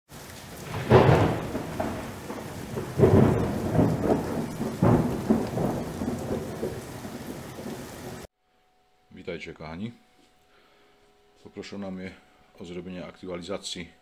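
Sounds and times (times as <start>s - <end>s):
steady rain: 0.1s - 8.3s
rolls of thunder: 0.2s - 8.3s.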